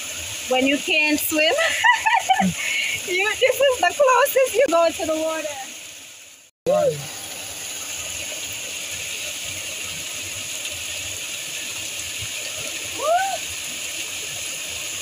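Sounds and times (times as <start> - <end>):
waterfall rushing: 0.0 - 5.8, 6.7 - 15.0
short vocal cry: 13.0 - 13.4.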